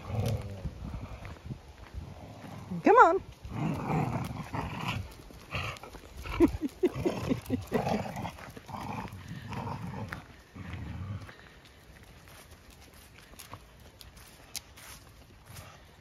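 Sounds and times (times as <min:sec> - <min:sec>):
dogs growling: 0:00.0 - 0:02.8, 0:03.4 - 0:11.6.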